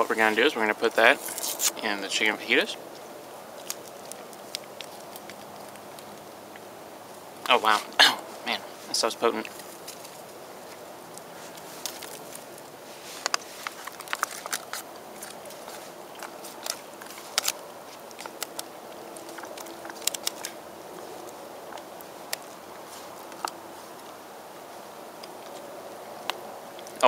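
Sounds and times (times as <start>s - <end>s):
faint steady hiss: 0.0s - 27.0s
foil pouch crinkling: 0.1s - 6.4s, 8.9s - 24.2s
plastic spoon clicking on foil: 16.6s - 20.6s.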